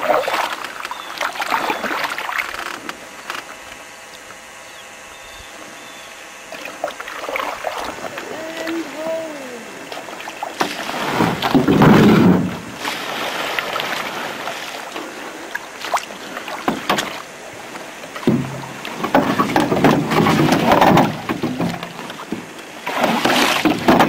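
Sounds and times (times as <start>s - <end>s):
paddles splashing water: 0.0s - 3.2s, 6.4s - 24.0s
paddles knocking hulls: 6.5s - 24.0s.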